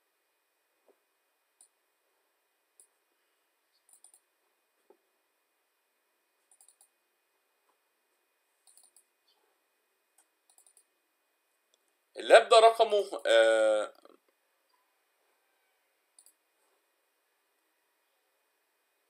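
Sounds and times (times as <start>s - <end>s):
computer mouse clicks: 3.7s - 4.3s, 6.4s - 7.0s, 8.6s - 9.1s, 10.2s - 10.9s, 16.1s - 16.4s.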